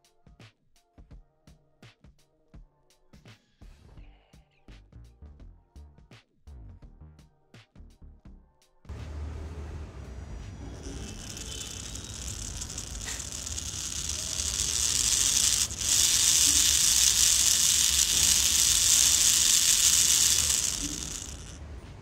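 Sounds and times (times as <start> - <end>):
small gear motor whining: 10.3 - 21.6.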